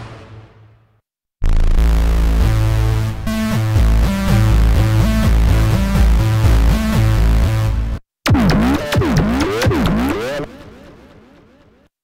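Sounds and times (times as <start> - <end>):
synthesizer lead melody: 2.3 - 11.4.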